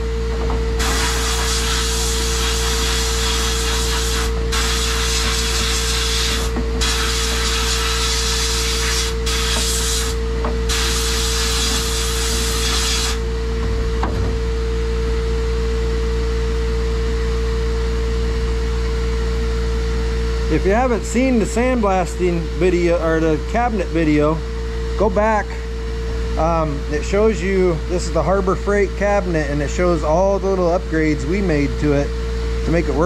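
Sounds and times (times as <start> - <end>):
steady hum: 0.0 - 33.0
sandblasting gun hissing: 0.8 - 13.2.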